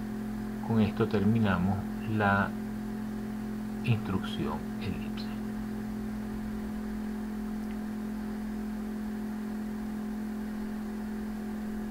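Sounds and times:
steady tonal hum: 0:00.0 - 0:11.9.

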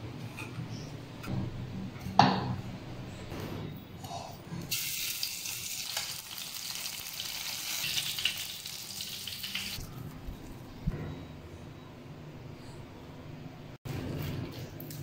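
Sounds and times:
fish frying in hot oil: 0:04.7 - 0:09.8.

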